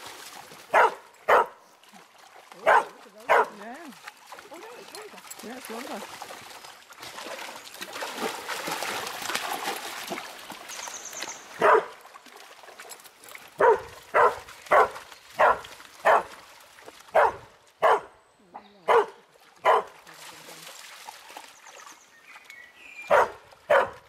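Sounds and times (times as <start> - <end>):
dogs splashing through water: 0.0 - 24.0
dog barking: 0.7 - 1.6, 2.6 - 3.6, 11.6 - 11.9, 13.6 - 16.3, 17.1 - 18.1, 18.8 - 19.9, 23.1 - 24.0.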